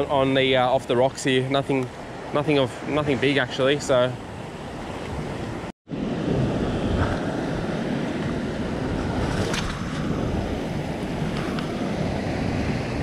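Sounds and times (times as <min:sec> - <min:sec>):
wind buffeting microphone: 0:04.2 - 0:13.0.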